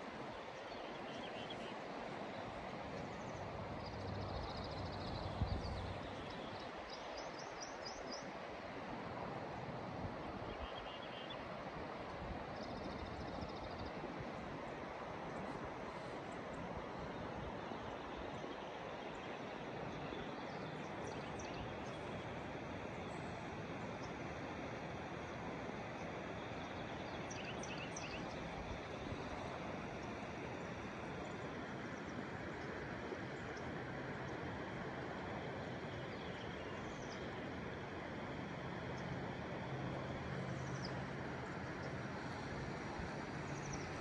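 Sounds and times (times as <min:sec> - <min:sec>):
river water rushing: 0:00.0 - 0:04.0, 0:21.7 - 0:44.0.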